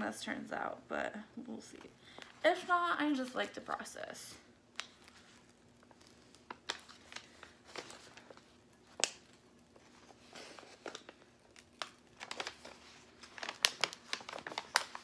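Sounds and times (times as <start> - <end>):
plastic sheet crinkling as peeled: 4.6 - 15.0.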